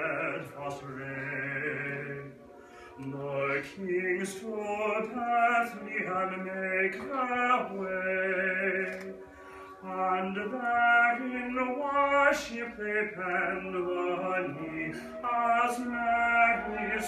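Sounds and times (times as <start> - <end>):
man singing solo: 0.0 - 2.4, 9.8 - 17.0.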